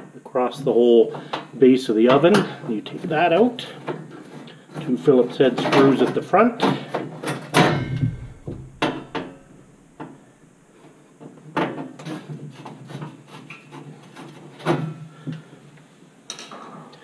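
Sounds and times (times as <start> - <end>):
sharp metal knocks: 7.6 - 9.8.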